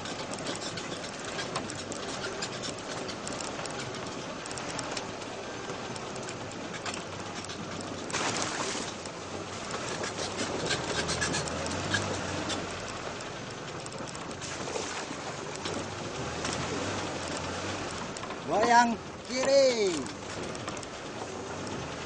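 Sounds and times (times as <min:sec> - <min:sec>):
rushing road noise: 0:00.0 - 0:22.0
vehicle engine running low: 0:00.0 - 0:22.0.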